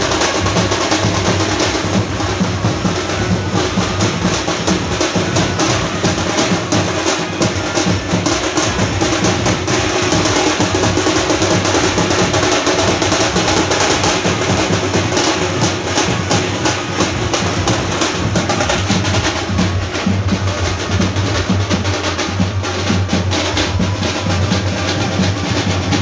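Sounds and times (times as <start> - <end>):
frame drums beaten fast: 0.0 - 26.0.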